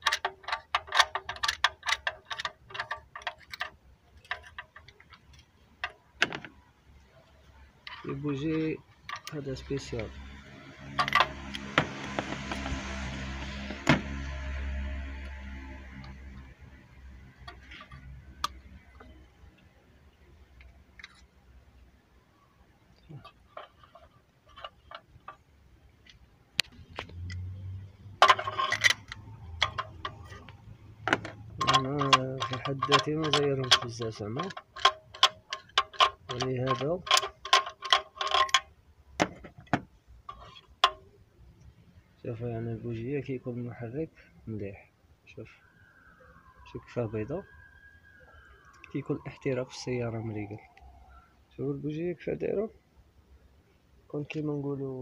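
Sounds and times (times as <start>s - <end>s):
hand tools clicking: 31.2s - 38.6s.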